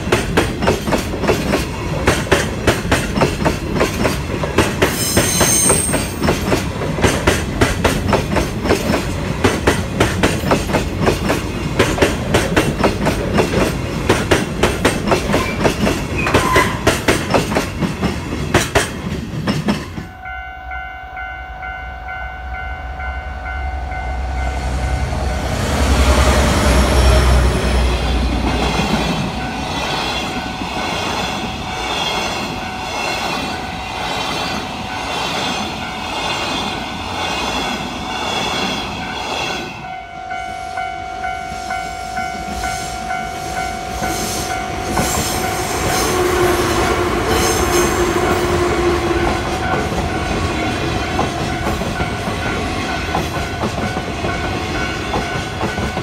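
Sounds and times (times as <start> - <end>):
crossing warning bell ringing: 19.9 - 56.0.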